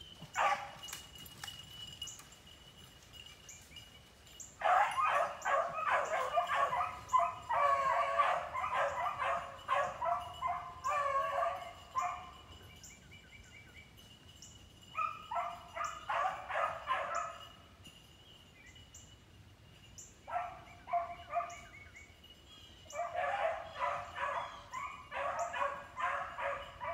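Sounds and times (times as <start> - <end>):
beagles baying: 4.6 - 12.7, 14.9 - 17.5, 20.2 - 22.0, 22.8 - 26.9.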